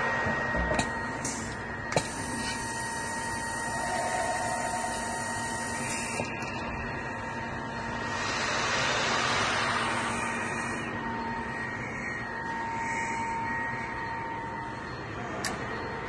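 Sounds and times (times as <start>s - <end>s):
industrial machinery drone: 0.0s - 16.0s
machine whine: 0.0s - 16.0s.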